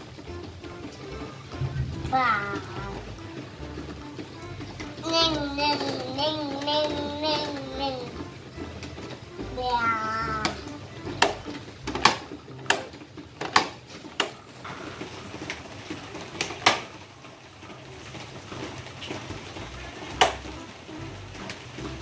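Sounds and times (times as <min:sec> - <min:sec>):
plastic toy arm clacking: 0:00.0 - 0:14.4, 0:16.3 - 0:17.0, 0:20.0 - 0:20.5.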